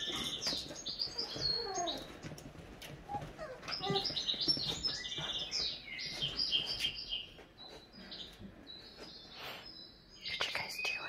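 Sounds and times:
puppies squeaking and whining: 0:00.0 - 0:07.1.

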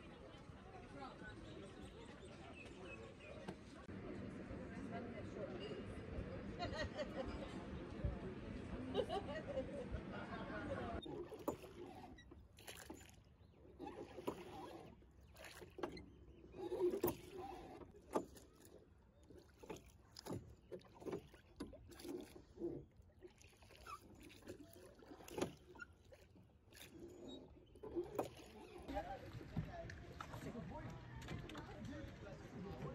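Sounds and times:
oars knocking in rowlocks: 0:11.0 - 0:23.0
water splashing from oars: 0:11.0 - 0:32.9.

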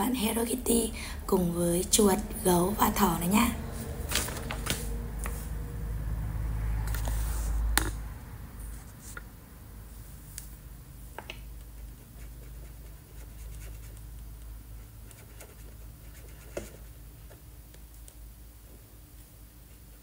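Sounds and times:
marker scratching on paper: 0:11.8 - 0:14.1, 0:14.8 - 0:17.0.

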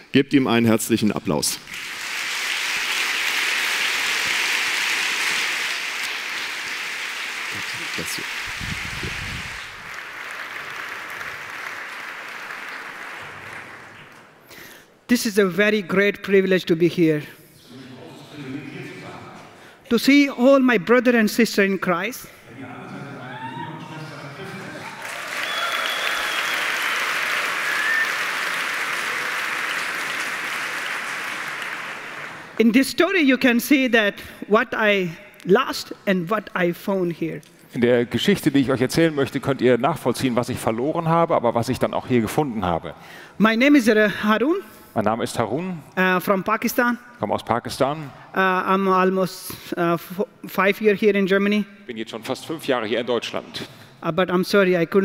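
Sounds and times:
large audience applauding: 0:01.7 - 0:14.4, 0:24.6 - 0:32.6.

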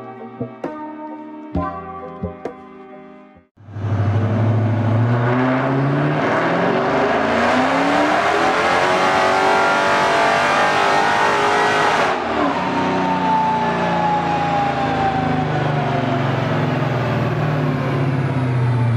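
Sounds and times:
car engine revving at full throttle: 0:03.6 - 0:18.9
falling whine: 0:11.2 - 0:18.9.

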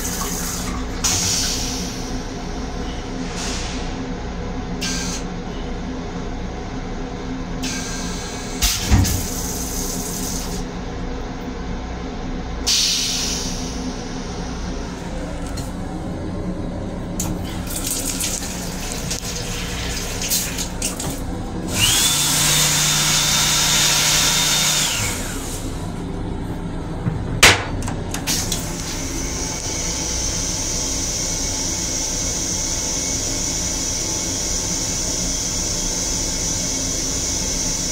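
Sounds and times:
faucet water running: 0:17.2 - 0:24.8
railcar rumble: 0:25.7 - 0:29.5
sharp knocks: 0:27.0 - 0:28.0.

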